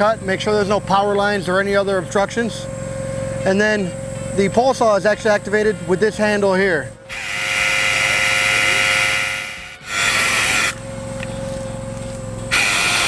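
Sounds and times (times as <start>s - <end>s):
boat engine hum: 0.0s - 13.0s
chainsaw cutting branch: 7.1s - 10.8s, 12.5s - 13.0s.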